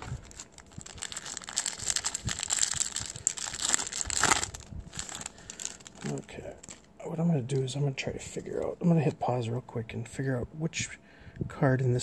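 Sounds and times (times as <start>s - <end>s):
wrapper crinkling: 0.0s - 8.6s.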